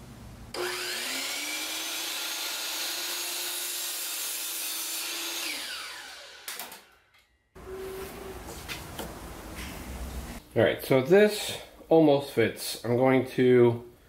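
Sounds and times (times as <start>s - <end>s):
miter saw motor whining: 0.6s - 3.4s, 5.2s - 7.0s.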